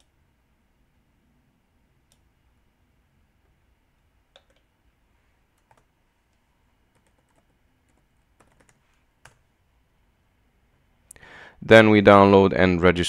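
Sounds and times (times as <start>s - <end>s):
keyboard keys clicking: 7.0s - 9.4s.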